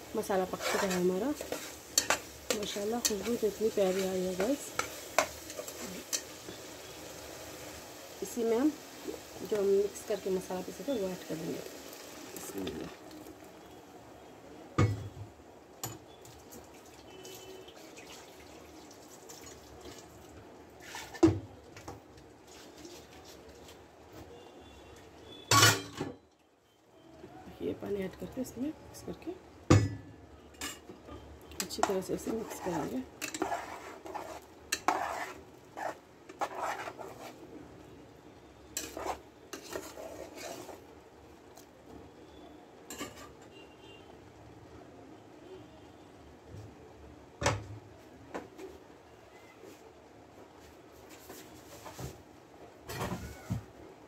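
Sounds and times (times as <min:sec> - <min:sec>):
spoon scraping metal pot: 0:00.4 - 0:06.3, 0:31.6 - 0:37.4, 0:38.8 - 0:40.8
paste bubbling in a pan: 0:11.3 - 0:13.4, 0:32.4 - 0:37.4, 0:38.8 - 0:40.9.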